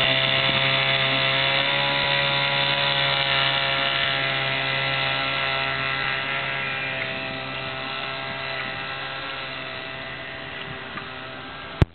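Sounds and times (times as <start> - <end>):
outboard motor droning: 0.0 - 11.9.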